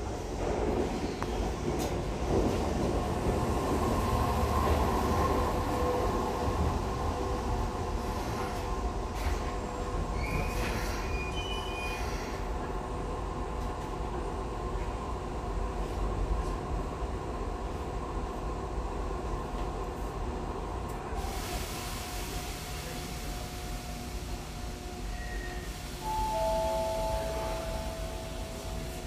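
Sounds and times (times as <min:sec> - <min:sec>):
train wheels rumbling on rail: 0:00.0 - 0:29.0
high wheel squeals: 0:10.2 - 0:12.3.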